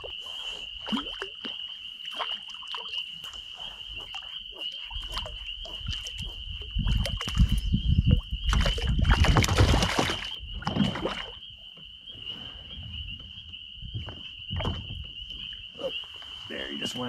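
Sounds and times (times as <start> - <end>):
fish splashing in water: 6.8 - 11.4
low thumps: 12.8 - 15.6.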